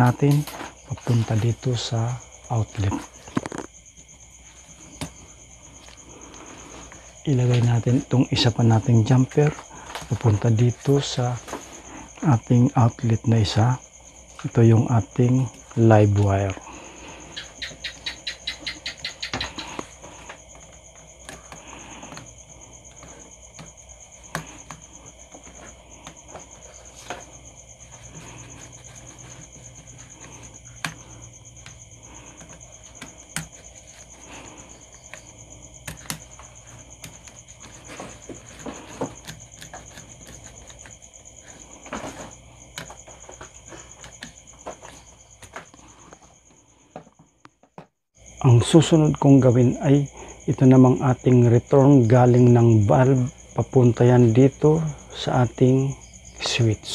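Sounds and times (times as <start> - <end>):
clicks and taps of wires: 35.8 - 40.9.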